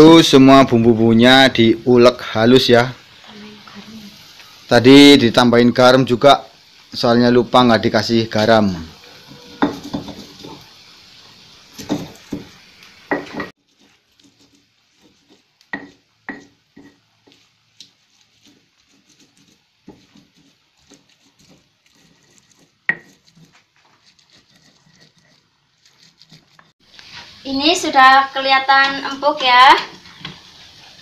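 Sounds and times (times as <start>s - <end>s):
steady hiss: 0.0s - 25.6s, 26.3s - 31.0s
stone pestle grinding on mortar: 9.2s - 10.6s, 11.7s - 12.5s, 13.1s - 26.8s.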